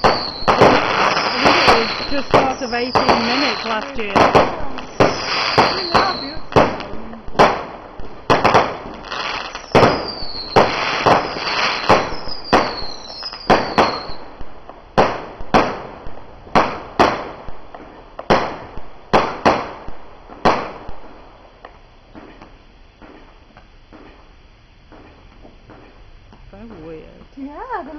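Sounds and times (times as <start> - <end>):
falling firework whistles: 0.0 - 6.8, 8.3 - 14.4
crackling hiss: 0.0 - 27.9
fireworks popping: 0.0 - 27.9.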